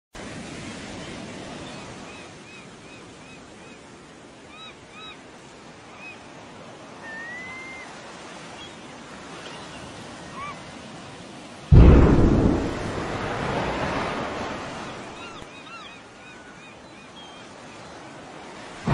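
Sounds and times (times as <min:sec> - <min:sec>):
wind: 0:00.1 - 0:18.9
surf: 0:03.8 - 0:18.9
loud low boom of explosion: 0:11.7 - 0:15.2.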